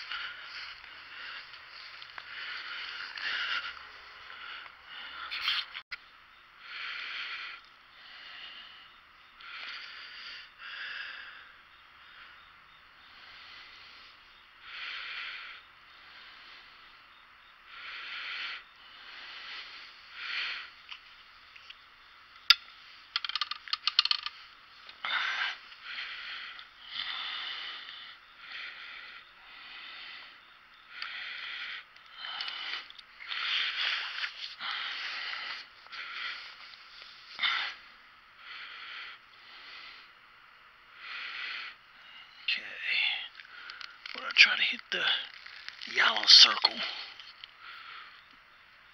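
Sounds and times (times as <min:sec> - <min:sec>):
man breathing and sniffing: 0:00.0 - 0:05.9, 0:06.6 - 0:40.3
rattle of clicks from bow handling: 0:22.4 - 0:25.0.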